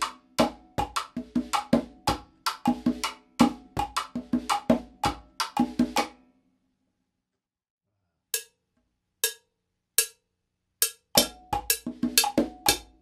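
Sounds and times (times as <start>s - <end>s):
conga drumming: 0.0s - 6.2s, 11.2s - 13.0s
stick on cowbell: 8.3s - 13.0s.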